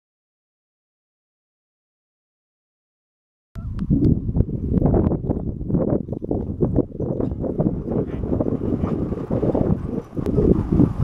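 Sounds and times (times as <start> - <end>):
wind rumbling on microphone: 3.6 - 11.0.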